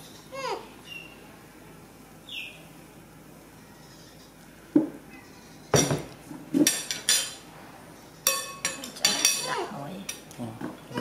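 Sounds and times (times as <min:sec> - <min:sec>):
ceramic clinks: 0:08.3 - 0:09.6.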